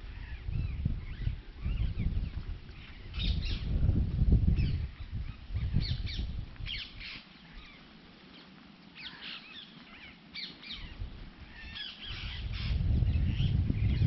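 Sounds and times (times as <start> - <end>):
small birds chirping: 4.5 - 14.0.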